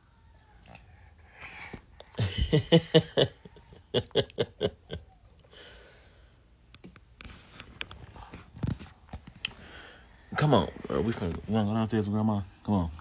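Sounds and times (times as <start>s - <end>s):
person laughing: 2.1s - 5.3s.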